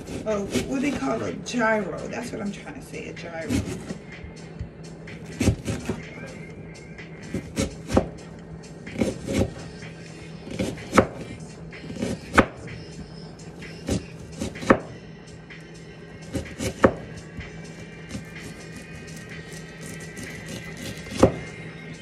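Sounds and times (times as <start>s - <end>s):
knife chopping on cutting board: 3.5s - 4.0s, 5.3s - 6.0s, 7.3s - 8.2s, 8.9s - 9.5s, 10.5s - 12.6s, 13.9s - 14.9s, 16.3s - 17.1s, 19.8s - 21.5s.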